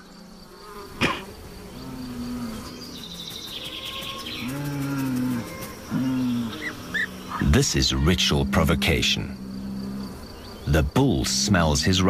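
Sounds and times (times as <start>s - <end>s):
insects buzzing: 0.0s - 12.0s
bull calling: 4.4s - 10.1s.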